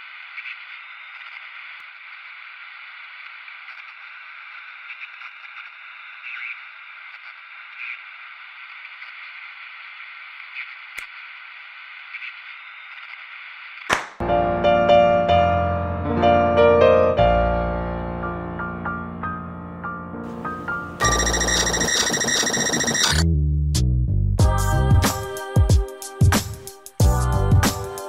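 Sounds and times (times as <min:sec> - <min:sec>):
radio-like static hiss: 0:00.0 - 0:13.9.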